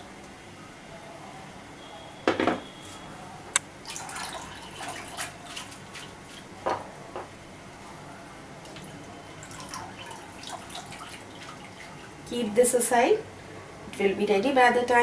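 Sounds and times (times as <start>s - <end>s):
loud knock: 2.3s - 2.6s.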